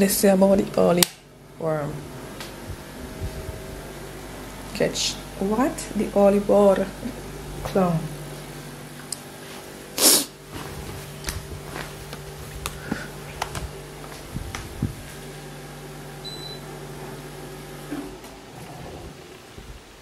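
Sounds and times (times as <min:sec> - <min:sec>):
air conditioner humming: 0:00.0 - 0:20.0
short high beep: 0:16.2 - 0:16.6.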